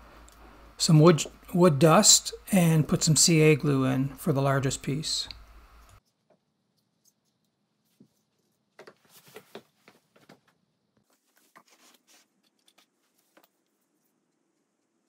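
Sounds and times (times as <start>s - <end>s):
small clicks and rustles: 5.8s - 15.0s.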